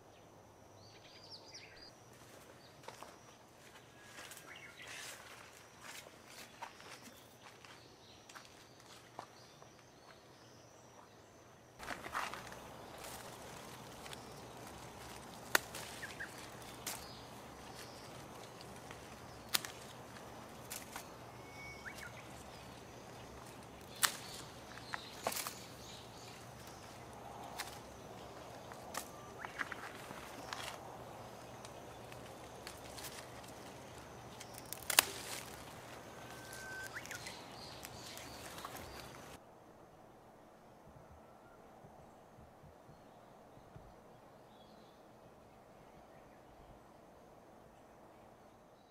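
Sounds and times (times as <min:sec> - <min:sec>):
rustling stems: 0:11.8 - 0:39.4
garden scissors snipping stems: 0:13.5 - 0:21.0, 0:23.4 - 0:24.5, 0:28.8 - 0:30.8, 0:34.3 - 0:35.8
bird whistle: 0:36.3 - 0:37.4.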